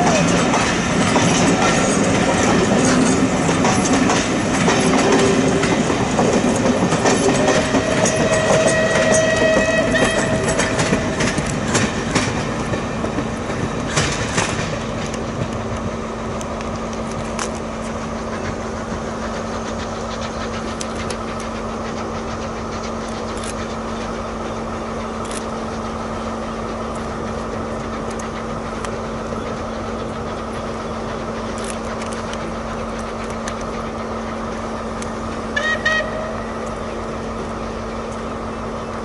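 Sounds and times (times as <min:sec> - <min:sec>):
train engine droning: 0:00.0 - 0:39.0
train wheels clicking over points: 0:00.0 - 0:39.0
train horn honk: 0:07.4 - 0:11.0, 0:35.5 - 0:36.6.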